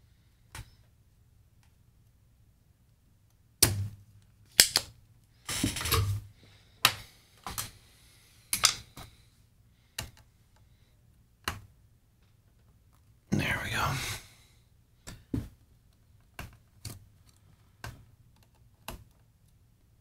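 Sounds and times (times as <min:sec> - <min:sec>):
desoldering pump snapping: 0:04.5 - 0:04.9, 0:08.5 - 0:08.8.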